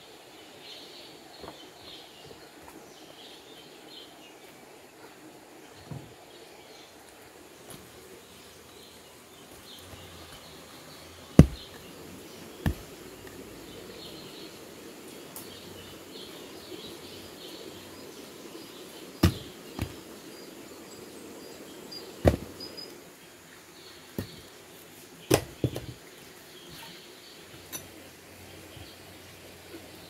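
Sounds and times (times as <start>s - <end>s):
faint chirping: 0.0s - 24.5s
logs knocking on ground: 11.4s - 11.9s, 12.6s - 13.0s, 19.2s - 20.0s, 22.2s - 22.6s, 25.3s - 26.0s.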